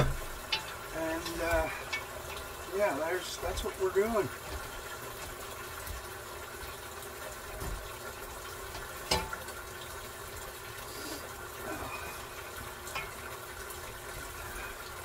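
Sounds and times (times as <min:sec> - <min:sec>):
water running: 0:00.0 - 0:15.0.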